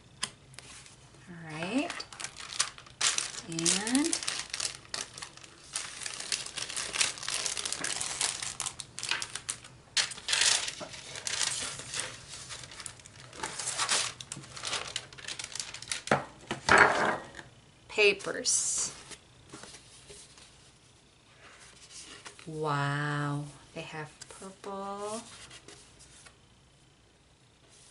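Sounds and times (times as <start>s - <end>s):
plastic and paper crinkling: 0.6s - 16.3s.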